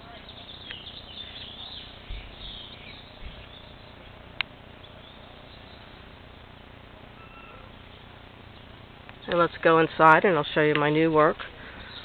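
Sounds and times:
low background noise: 0:00.0 - 0:12.0
faint short high tone: 0:07.2 - 0:07.7.

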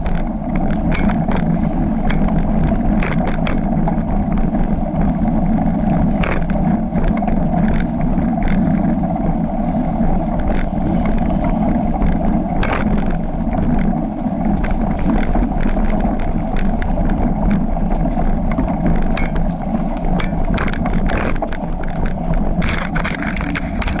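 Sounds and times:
bike clicking and rattling: 0:00.0 - 0:24.0
bike tyres rumbling on dirt: 0:00.0 - 0:24.0.

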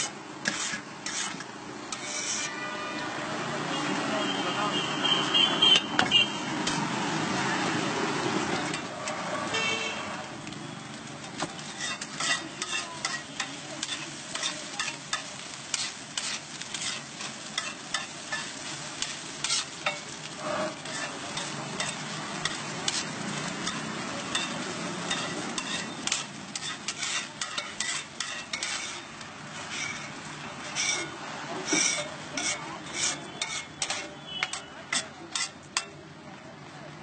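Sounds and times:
metal spatula scraping griddle: 0:00.0 - 0:03.0, 0:08.5 - 0:10.2, 0:11.0 - 0:36.0
egg sizzling: 0:10.3 - 0:34.2.

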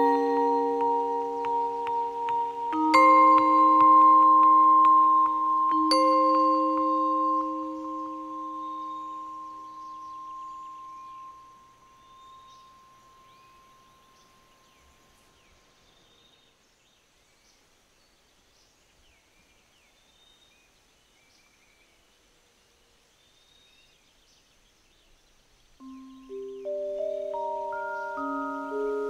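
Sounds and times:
held vibraphone note: 0:00.0 - 0:14.6, 0:25.8 - 0:29.0
faint high chirping: 0:00.0 - 0:22.1, 0:23.2 - 0:29.0.

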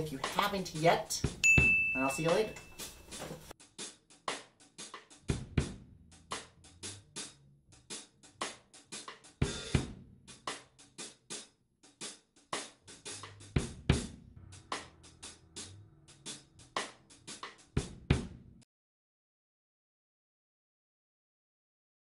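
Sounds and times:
drum kit beat: 0:00.0 - 0:18.6.

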